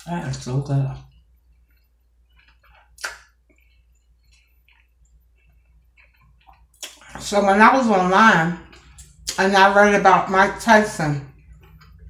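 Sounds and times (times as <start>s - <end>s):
close-miked chewing: 1.1s - 7.0s
wet mouth clicks: 1.1s - 7.1s.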